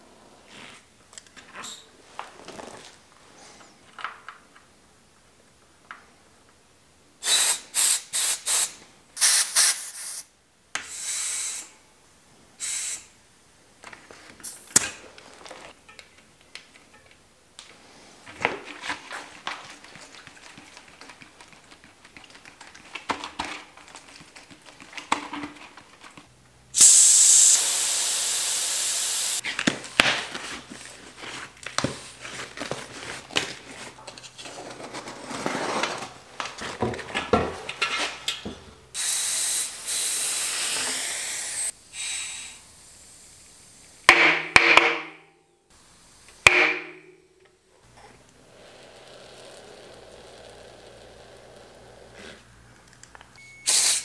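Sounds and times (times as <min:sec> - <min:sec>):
handling and rubbing sounds: 0:00.0 - 0:03.8, 0:14.0 - 0:26.3, 0:29.4 - 0:38.3
air hissing from tyre valve: 0:07.2 - 0:11.8, 0:12.6 - 0:13.2, 0:26.8 - 0:29.4, 0:39.0 - 0:44.1, 0:53.6 - 0:54.0.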